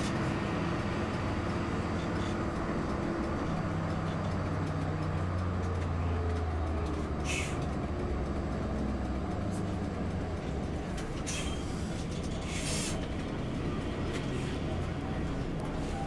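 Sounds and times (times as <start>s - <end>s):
bus engine drone: 0.0s - 16.0s
road noise: 0.0s - 16.0s
air brake hisses: 7.2s - 7.7s, 11.2s - 13.1s.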